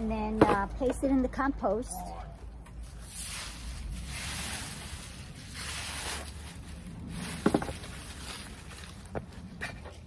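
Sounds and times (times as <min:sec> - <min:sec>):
dry leaves rustling: 0:02.8 - 0:10.0.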